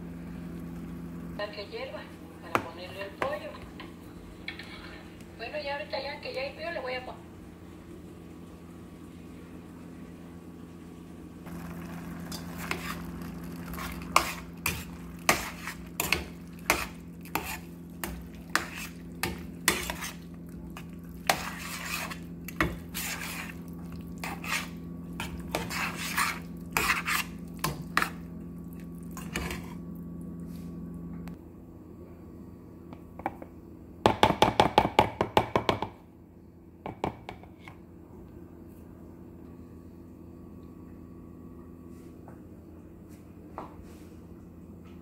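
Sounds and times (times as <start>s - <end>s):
steady low hum: 0.0s - 34.1s, 36.0s - 45.0s
spoon scraping in a metal pan: 12.2s - 20.3s, 21.2s - 23.6s, 24.2s - 28.2s.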